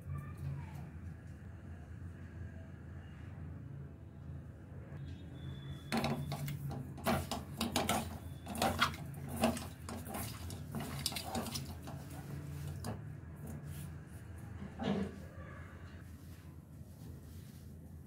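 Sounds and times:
fish knocking against metal bowl: 5.9s - 12.0s
wet hand handling of fish: 6.0s - 13.8s.

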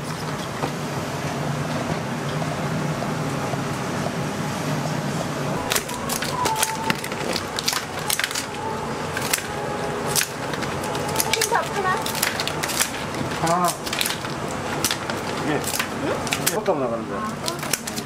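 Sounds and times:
steady hum: 0.0s - 18.0s
scissors cracking crab shells: 9.2s - 9.5s, 10.1s - 16.7s, 17.3s - 18.0s.

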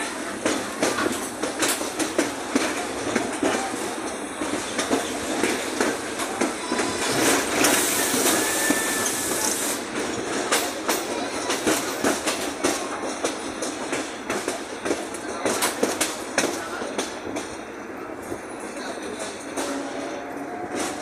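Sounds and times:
train rumble: 0.0s - 21.0s
wheels clacking on rails: 0.0s - 21.0s
loud hiss: 7.2s - 9.9s.

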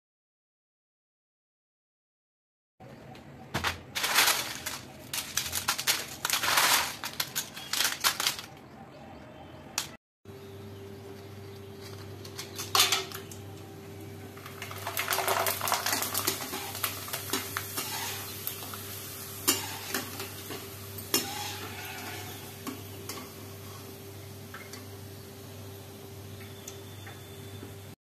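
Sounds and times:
chips sizzling in hot oil: 4.0s - 8.3s, 14.3s - 27.0s.

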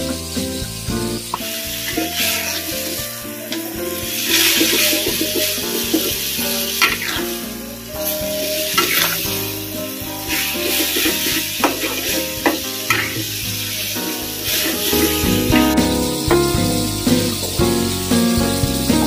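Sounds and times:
food sizzling in a wok: 0.0s - 19.0s
soft background music: 0.0s - 19.0s
metal spatula scraping a pan: 1.4s - 15.8s.

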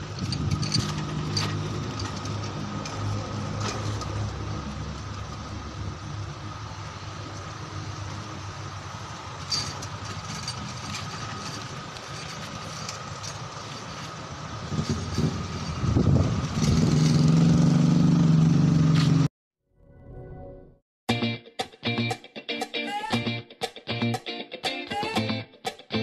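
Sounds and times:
engine and traffic hum: 0.0s - 19.3s
vehicle engine running close: 0.0s - 19.3s.

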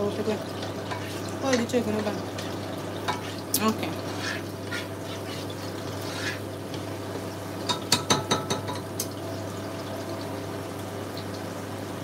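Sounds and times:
onions sizzling in oil: 0.0s - 12.0s
metal spoon clinking on a pot: 7.7s - 8.8s.

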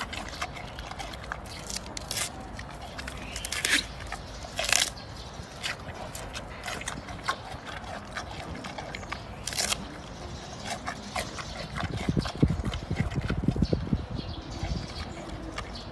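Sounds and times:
bamboo crunching and snapping: 0.0s - 12.3s
rhythmic chewing thuds: 0.0s - 15.9s.

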